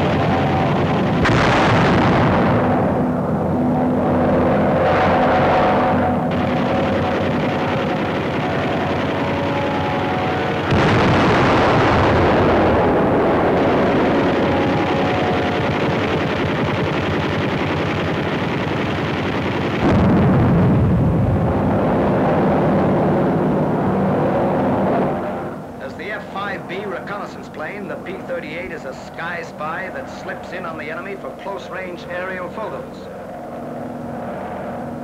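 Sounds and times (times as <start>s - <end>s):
gunfire: 0.0s - 3.2s, 4.8s - 21.2s
explosions: 0.0s - 3.4s, 10.5s - 17.6s, 18.9s - 23.4s.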